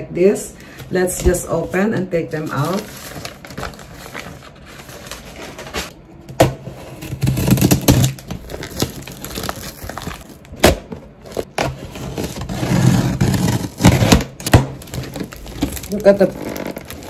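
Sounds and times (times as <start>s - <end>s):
plastic crinkling: 1.4s - 5.9s, 7.4s - 11.6s, 14.7s - 17.0s
box cutter slicing tape: 7.0s - 10.0s, 11.6s - 15.1s.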